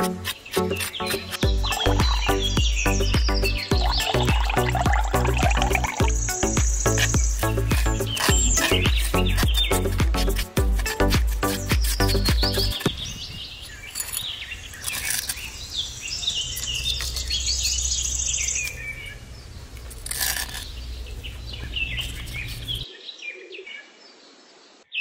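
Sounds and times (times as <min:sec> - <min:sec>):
trowel scraping mortar in bowl: 0:00.0 - 0:02.6, 0:05.2 - 0:12.9, 0:13.8 - 0:15.5, 0:19.9 - 0:20.8
small birds chirping: 0:00.0 - 0:25.0.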